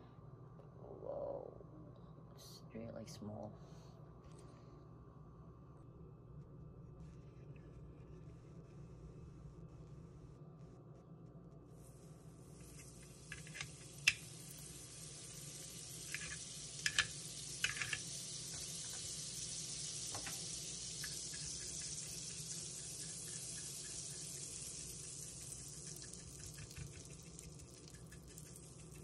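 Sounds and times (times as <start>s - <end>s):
butter sizzling on hot plate: 11.8s - 29.0s.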